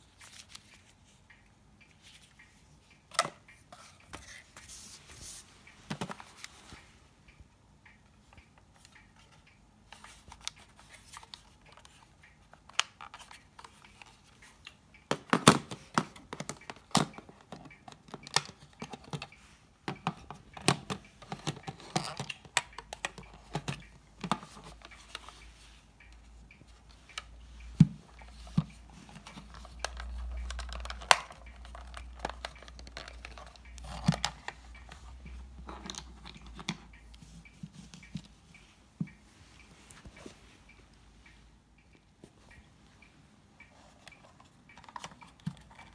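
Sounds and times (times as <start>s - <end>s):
plastic clicks and taps: 7.9s - 25.4s, 26.0s - 40.3s, 43.6s - 45.9s.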